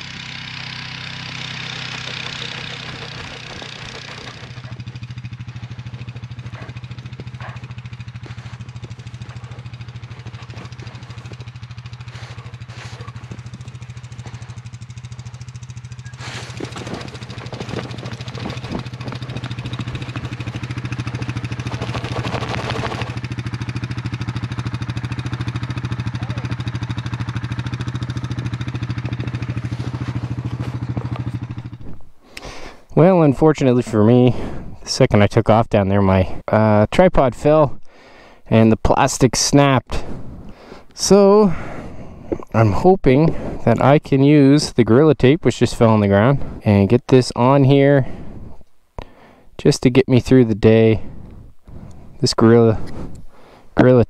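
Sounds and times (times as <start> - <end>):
rattling bursts: 0.0 - 32.2
engine running steadily: 0.0 - 35.0, 50.2 - 54.0.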